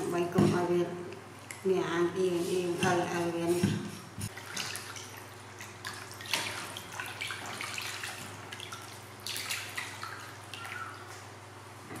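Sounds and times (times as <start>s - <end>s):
water sloshing and splashing: 3.7s - 11.4s
water dripping: 4.4s - 11.3s.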